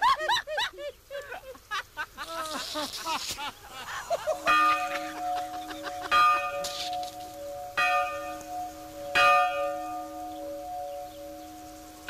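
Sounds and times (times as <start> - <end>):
church bell tolling: 4.4 - 12.0.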